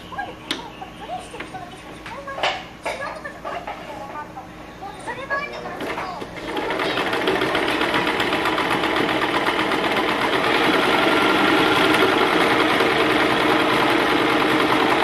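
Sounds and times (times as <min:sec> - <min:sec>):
electric sewing machine stitching: 0:05.8 - 0:15.0.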